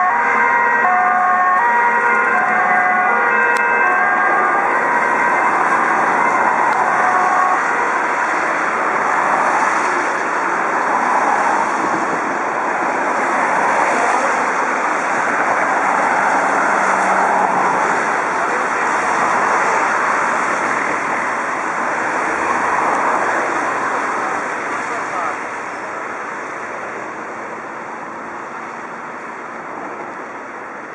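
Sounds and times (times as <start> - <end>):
car engine noise: 0.0 - 30.9
tyres hissing on wet road: 7.5 - 30.9.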